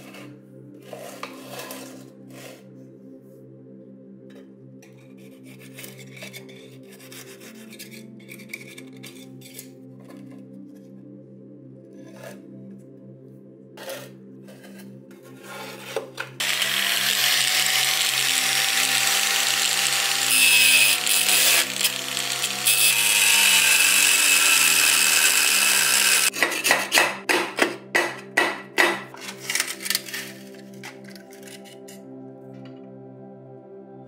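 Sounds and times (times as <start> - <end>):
grinding wheel whining on steel: 16.4 - 26.3.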